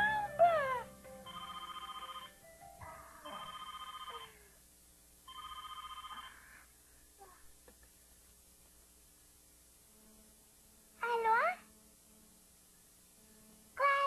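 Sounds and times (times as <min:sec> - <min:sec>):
cordless telephone ringing: 0:01.3 - 0:02.4, 0:03.3 - 0:04.3, 0:05.3 - 0:06.4.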